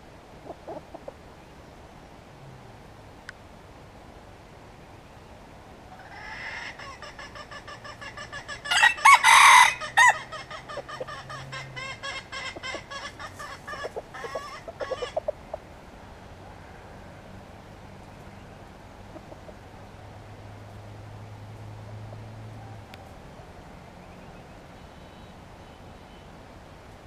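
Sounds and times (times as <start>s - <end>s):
rooster clucking: 0.4s - 1.2s, 6.0s - 15.7s, 19.1s - 19.6s
rooster crowing: 8.6s - 15.2s.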